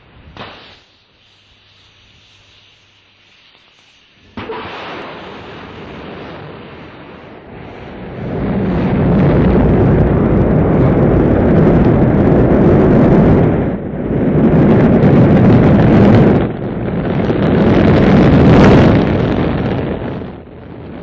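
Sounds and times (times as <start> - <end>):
rocket engines igniting: 0.0 - 21.0
deep rocket rumble: 4.2 - 21.0.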